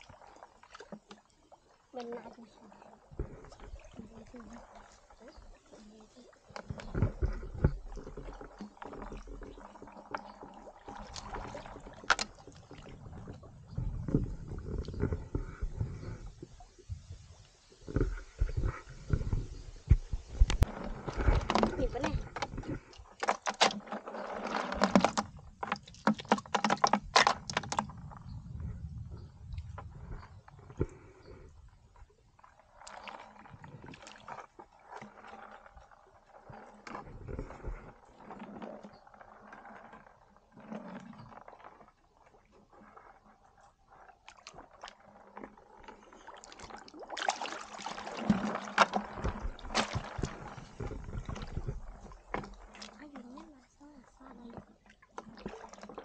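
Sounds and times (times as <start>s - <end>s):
water splashing and sloshing: 0.0s - 56.0s
sharp splashes: 46.2s - 51.4s.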